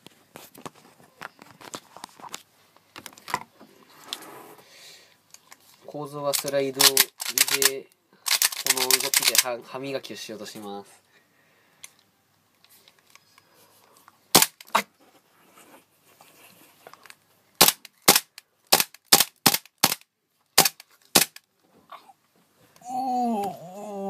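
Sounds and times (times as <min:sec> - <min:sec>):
pistol slide snapping back: 0:06.4 - 0:07.7, 0:08.3 - 0:09.4
airsoft pistol firing: 0:14.4 - 0:14.6, 0:17.6 - 0:20.0, 0:20.6 - 0:21.4.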